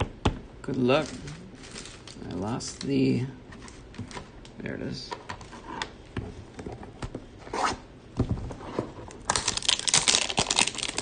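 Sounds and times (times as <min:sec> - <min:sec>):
plastic wrap crinkling and tearing: 0:00.8 - 0:03.1, 0:09.2 - 0:11.0.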